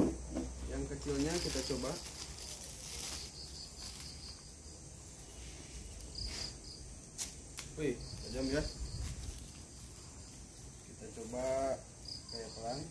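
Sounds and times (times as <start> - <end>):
insects trilling: 0.0 - 12.9
plastic bag rustle: 0.7 - 6.6, 8.3 - 11.6.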